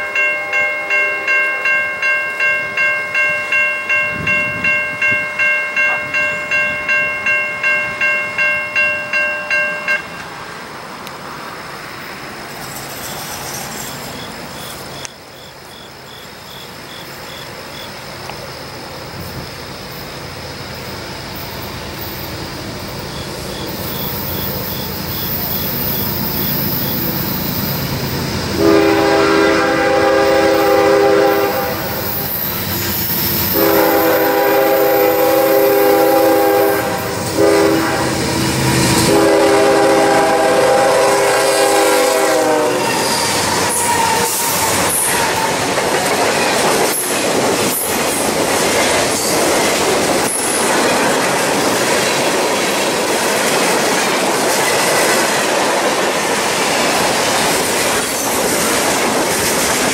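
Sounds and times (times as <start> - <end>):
train wheels clicking on rail joints: 0.0 - 29.1, 30.0 - 59.9
diesel locomotive rumble: 4.0 - 52.8
train horn blasts: 28.5 - 32.2, 33.5 - 45.5.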